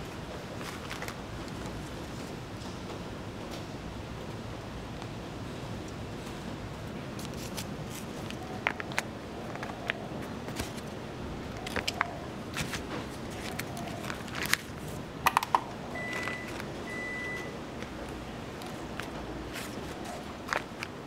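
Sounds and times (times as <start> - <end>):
short faint beeps: 16.0 - 17.6.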